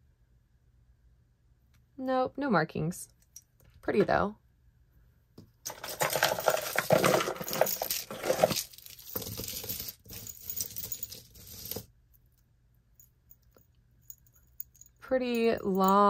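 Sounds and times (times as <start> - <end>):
jewelry jangling and clinking: 5.7 - 11.9, 13.0 - 16.0.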